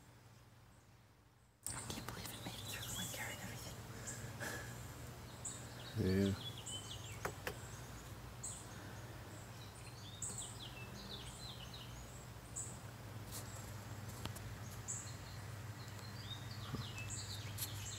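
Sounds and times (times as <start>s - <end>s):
songbird singing: 0.0s - 17.9s.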